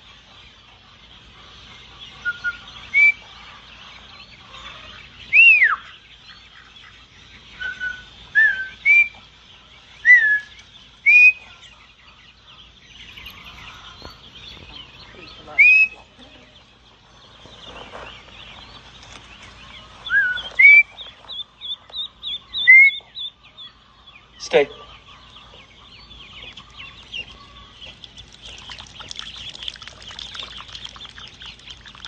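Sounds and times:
ducklings peeping: 0:00.0 - 0:32.0.

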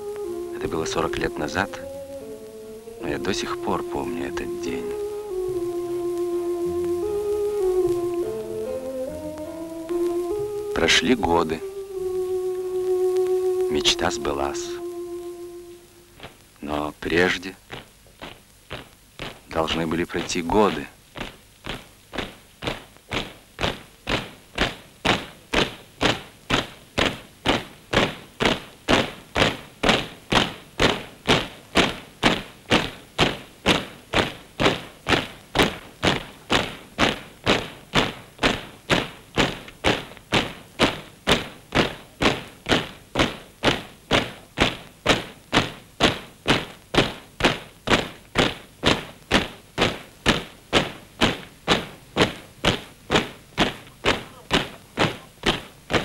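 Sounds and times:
soldiers' boots marching in step: 0:16.1 - 0:56.0.

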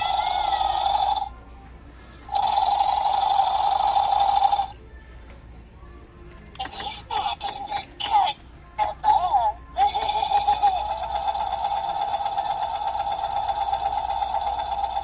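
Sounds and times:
toy warbling cries: 0:00.0 - 0:01.3, 0:02.3 - 0:04.8, 0:06.6 - 0:14.9.

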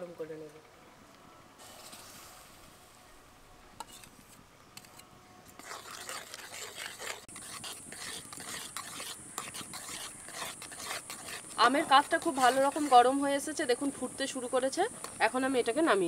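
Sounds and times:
thin steady hiss: 0:00.0 - 0:05.5.

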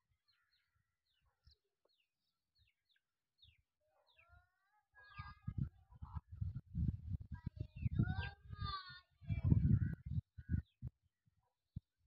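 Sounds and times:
faint birds chirping: 0:00.0 - 0:11.8.

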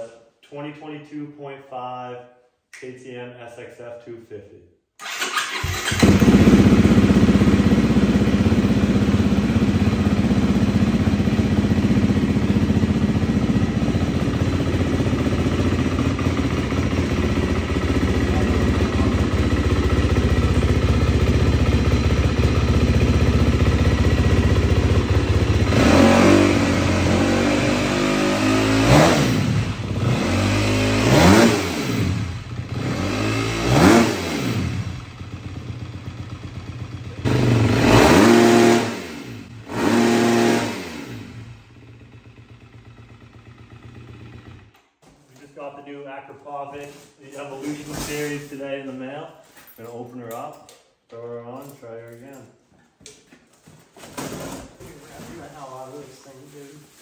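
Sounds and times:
dirt bike engine idling and revving: 0:05.1 - 0:44.8.

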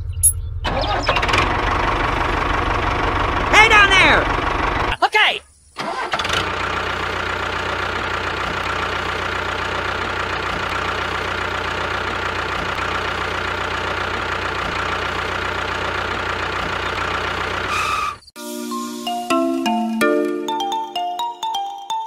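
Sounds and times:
tractor engine idling: 0:00.0 - 0:05.0, 0:05.8 - 0:18.2.

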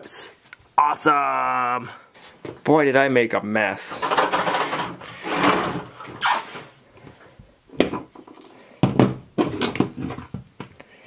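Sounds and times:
rustling and handling noise: 0:02.1 - 0:02.7, 0:03.8 - 0:08.7, 0:09.3 - 0:10.9.

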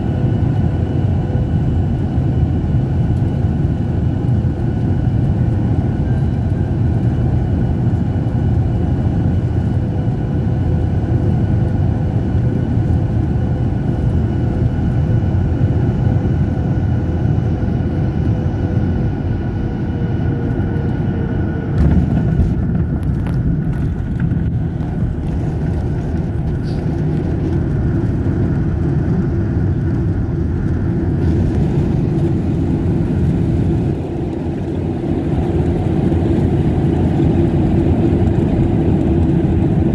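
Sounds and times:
aircraft engine and airflow rush: 0:00.0 - 0:39.9
landing roll rumble: 0:21.8 - 0:26.2.

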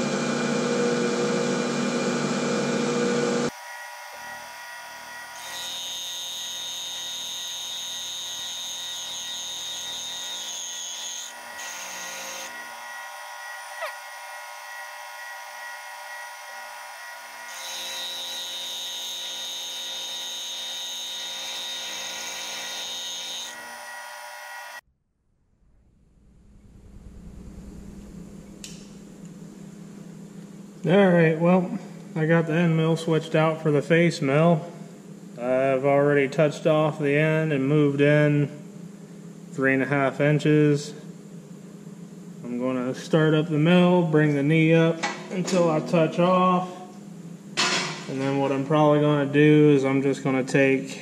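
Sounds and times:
high cutter whine: 0:00.0 - 0:24.8
milling machine running: 0:04.2 - 0:24.7.

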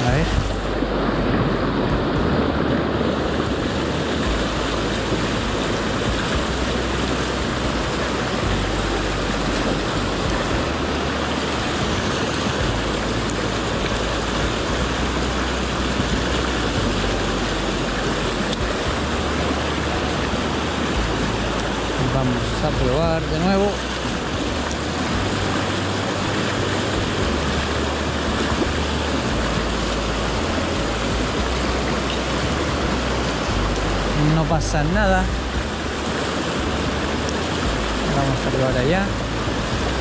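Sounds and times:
stream rushing over rocks: 0:00.0 - 0:40.0.

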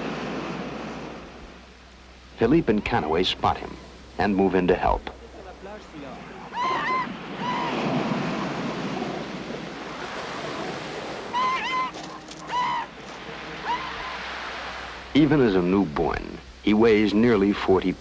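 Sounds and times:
surf washing: 0:00.0 - 0:18.0
seal pup crying: 0:06.2 - 0:14.6.

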